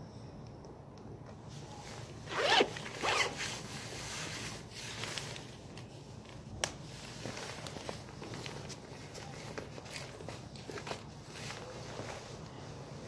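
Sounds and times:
jacket zipper being pulled: 2.3s - 3.4s.

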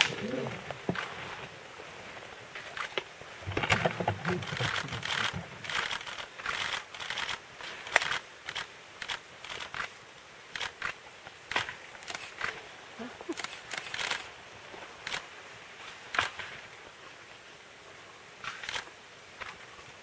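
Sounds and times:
leaves and twigs rustling: 0.0s - 17.4s
sharp clicks and snaps: 4.4s - 9.9s, 13.3s - 14.3s.

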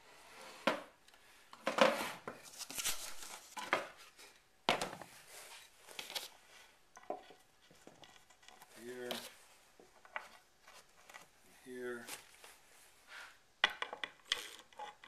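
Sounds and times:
wooden pieces knocking: 13.6s - 15.0s.

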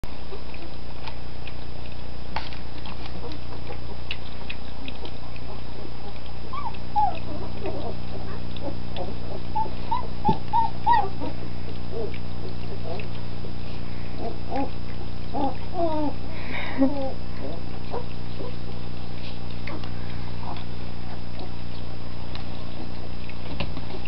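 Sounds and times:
steady low hum: 0.0s - 24.0s
puppies lapping from a bowl: 0.1s - 24.0s
puppies squeaking and whimpering: 6.4s - 24.0s.

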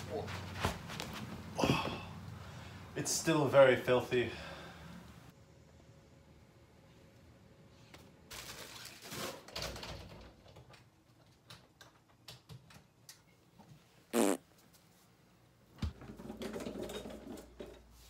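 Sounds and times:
rustling and scraping: 0.0s - 1.6s.

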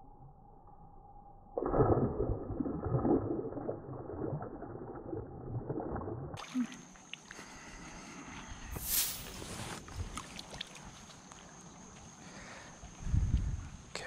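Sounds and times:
fish splashing in shallow water: 8.8s - 12.9s.

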